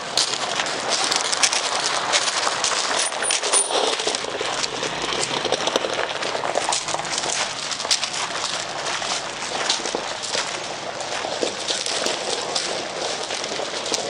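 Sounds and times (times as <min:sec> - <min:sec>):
footsteps crunching on gravel: 0:00.0 - 0:14.0.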